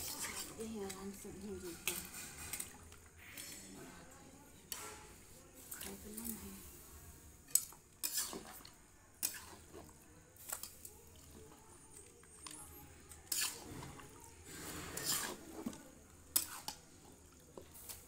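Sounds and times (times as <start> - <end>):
metal spatula scraping pan: 0.0 - 4.0, 7.5 - 8.6, 9.2 - 9.8, 13.2 - 15.7, 16.3 - 16.8.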